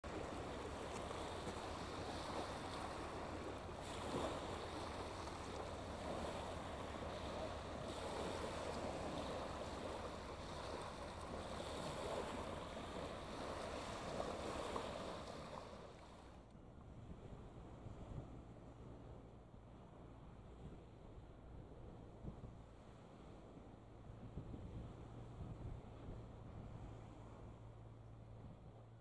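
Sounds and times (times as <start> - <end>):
waves washing onto shingle: 0.0 - 16.4.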